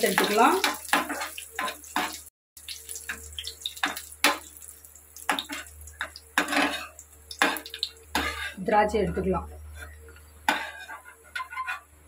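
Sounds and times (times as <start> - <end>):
raisins sizzling in oil: 0.0 - 11.8
spatula scraping pan: 0.1 - 2.3, 5.3 - 12.0.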